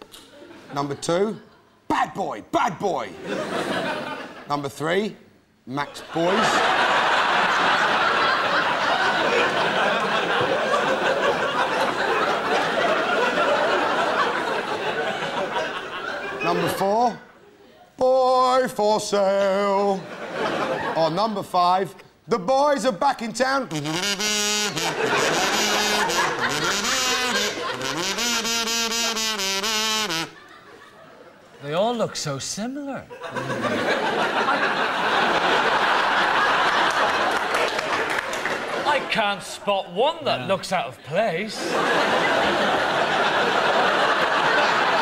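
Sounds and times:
studio audience laughing: 3.1s - 4.5s, 6.0s - 17.0s, 20.0s - 21.2s, 24.5s - 28.2s, 30.1s - 31.6s, 33.1s - 39.2s, 41.5s - 45.0s.

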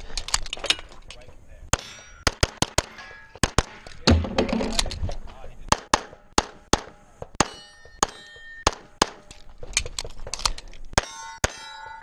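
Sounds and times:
pistol shots: 1.7s - 4.3s, 5.7s - 9.3s
steel targets clanging: 1.7s - 4.8s, 7.4s - 9.4s, 11.0s - 12.0s.

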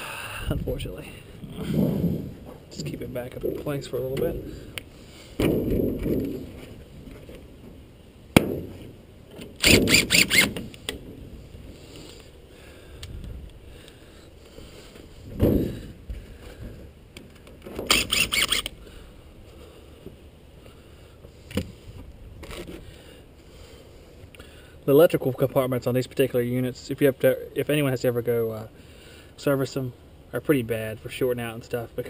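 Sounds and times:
impact driver hammering: 9.6s - 10.6s
sharp clicks: 17.8s - 18.8s.

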